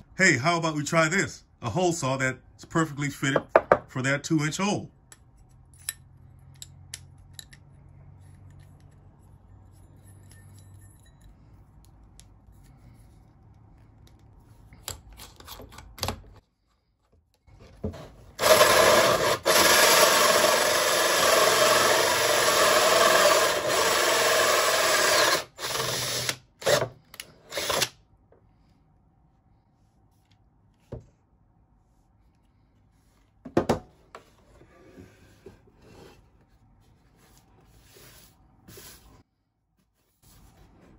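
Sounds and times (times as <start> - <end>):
drill hole saw cutting wood: 18.4 - 27.9
drill trigger bursts: 18.4 - 27.9.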